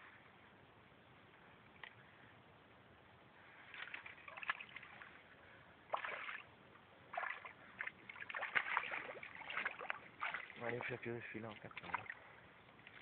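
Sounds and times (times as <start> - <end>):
water splashing: 3.5 - 5.2, 5.9 - 13.0.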